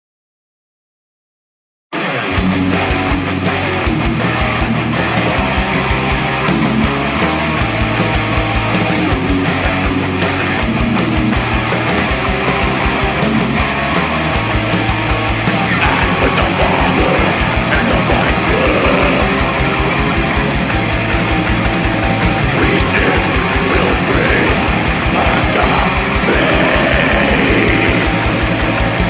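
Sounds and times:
distorted electric guitars: 1.9 - 29.0
fast drumming: 14.1 - 29.0.

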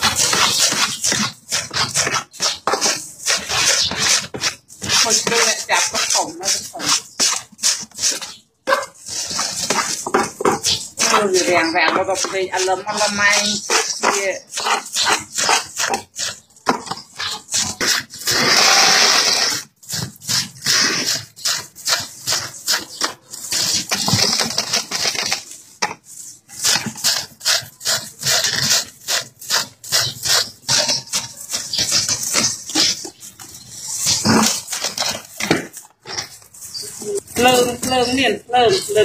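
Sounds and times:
hands rummaging in wet bucket: 19.5 - 39.0.

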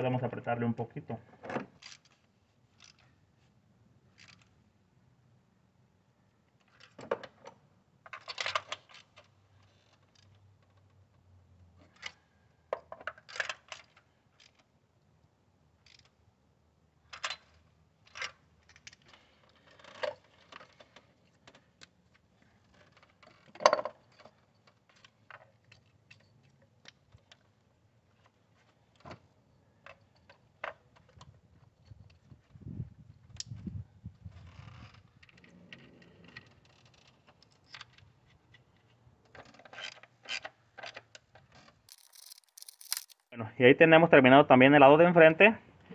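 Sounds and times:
ratchet clicking: 41.9 - 43.2.

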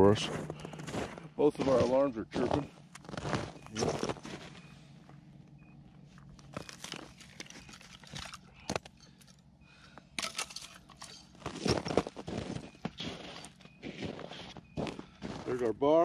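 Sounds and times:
boots crunching on snowy ice: 0.0 - 4.6, 11.4 - 15.6
faint electronic alarm chirps: 0.0 - 16.0.

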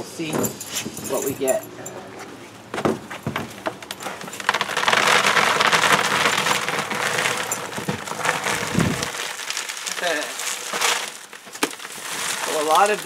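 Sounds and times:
pebbles pouring into plastic tub: 3.9 - 13.0.

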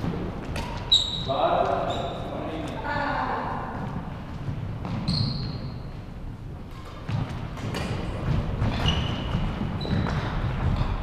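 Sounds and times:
short high squeaks: 0.9 - 2.2
echoing thumps and knocks: 6.6 - 11.0.

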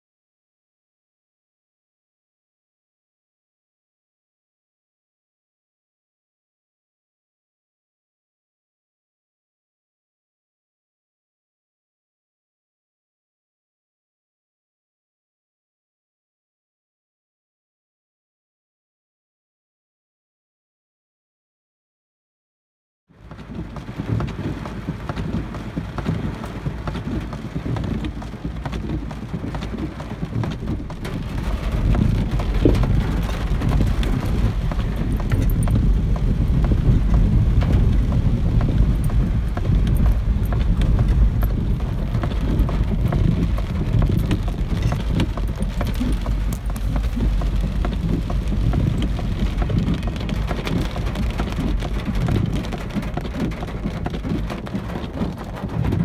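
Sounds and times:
rain on a car: 23.2 - 56.0
road and engine rumble: 23.2 - 56.0.

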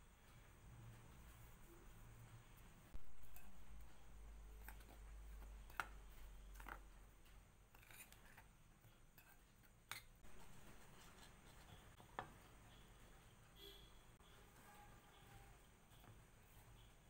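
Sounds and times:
spoon scraping flour in bowl: 7.7 - 12.0.

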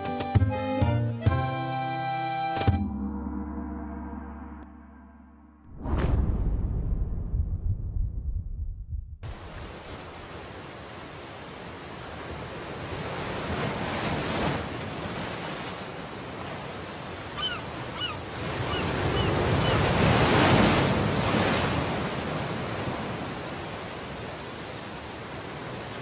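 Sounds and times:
ocean surf breaking on beach: 9.3 - 26.0
seabirds calling: 16.8 - 20.4.

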